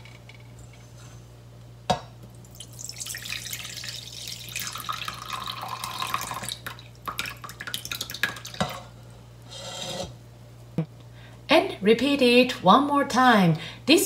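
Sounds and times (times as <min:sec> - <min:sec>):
water pouring into bowl: 0:02.5 - 0:08.7.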